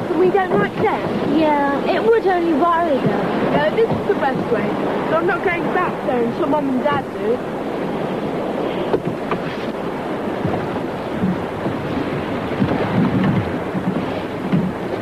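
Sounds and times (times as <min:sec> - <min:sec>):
surf washing onto a beach: 0:00.0 - 0:15.0
wind buffeting the microphone: 0:00.0 - 0:15.0
low thuds: 0:10.3 - 0:15.0.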